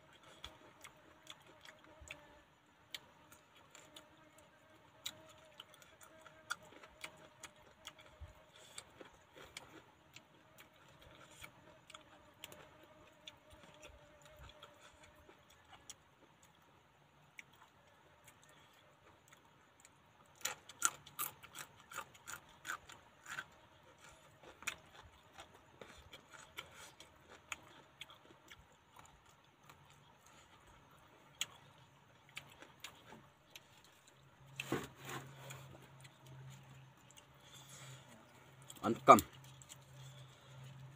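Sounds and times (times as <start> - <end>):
chewing raw vegetables: 0.0 - 40.9.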